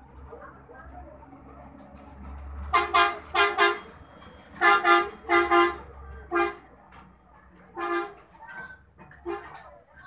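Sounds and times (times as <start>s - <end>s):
vehicle horn honking: 2.7s - 3.8s, 4.6s - 6.6s.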